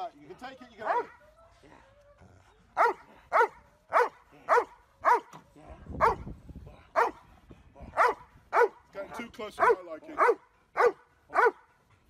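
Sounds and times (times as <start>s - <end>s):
dog barking sharply: 8.0s - 8.8s, 9.6s - 11.6s.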